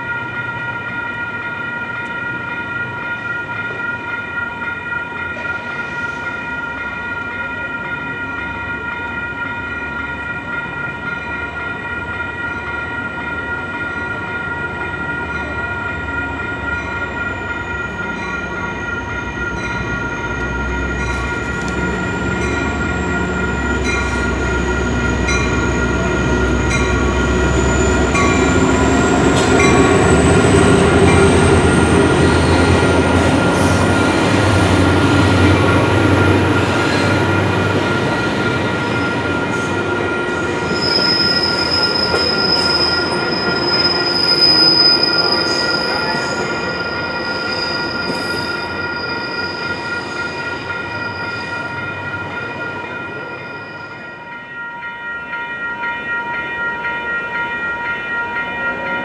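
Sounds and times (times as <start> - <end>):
grade crossing bells ringing: 0.0 - 59.0
train wheel squeal: 5.4 - 6.6, 16.9 - 35.5, 36.5 - 52.4, 53.1 - 54.3
locomotive engine rumbling: 6.7 - 47.9.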